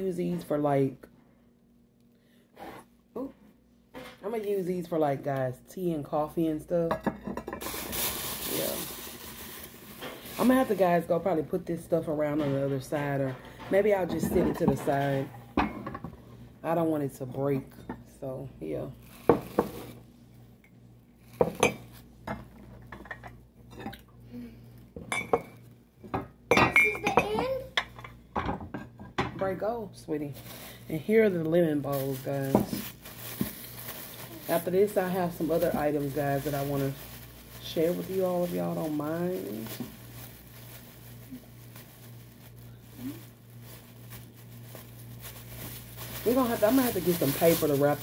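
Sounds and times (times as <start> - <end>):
plastic bag rustling: 7.6 - 15.4, 18.8 - 20.1, 30.2 - 48.0.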